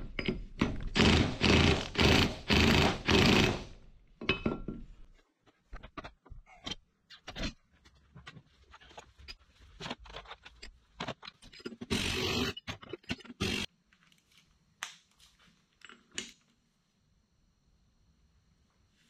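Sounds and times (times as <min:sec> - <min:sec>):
impact wrench rattling: 0:00.2 - 0:03.7.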